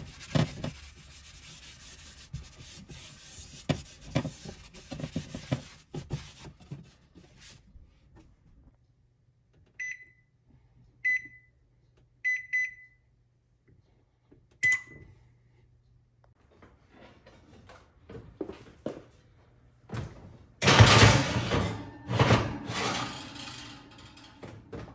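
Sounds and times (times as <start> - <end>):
cloth rubbing cast iron griddle: 0.0 - 6.6
oven keypad beeping: 9.8 - 10.3, 11.0 - 11.6, 12.2 - 13.1, 14.6 - 15.1
oven door pulled open: 20.6 - 24.9.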